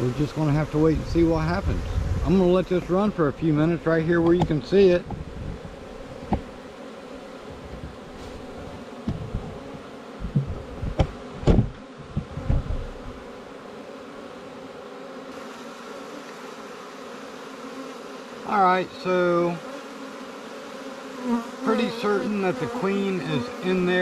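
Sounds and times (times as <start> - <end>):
bees humming: 0.0 - 24.0
soft thumps: 7.7 - 12.8.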